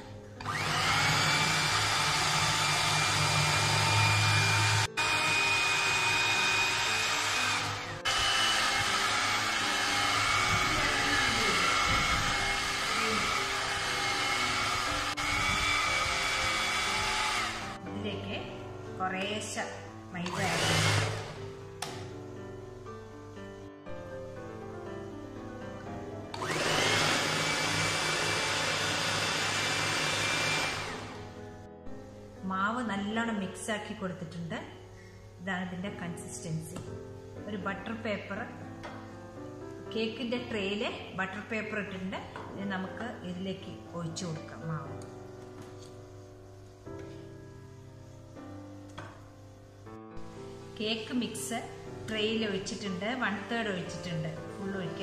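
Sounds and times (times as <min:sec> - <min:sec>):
background music: 0:00.0 - 0:55.0
electric mixer motor whine: 0:00.4 - 0:17.8, 0:20.2 - 0:21.4, 0:26.3 - 0:31.4.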